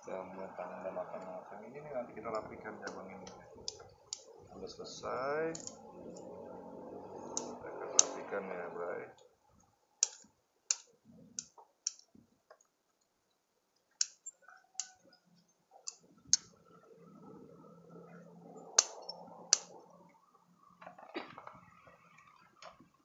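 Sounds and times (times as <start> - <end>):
pruning shears snipping twigs: 5.6 - 6.3, 7.2 - 8.3, 10.0 - 12.1.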